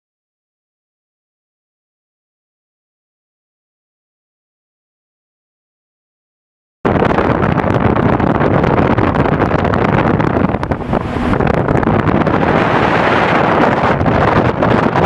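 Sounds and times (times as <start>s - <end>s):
boat hull rushing through water: 6.9s - 15.0s
boat motor running: 6.9s - 15.0s
wind buffeting microphone: 6.9s - 15.0s.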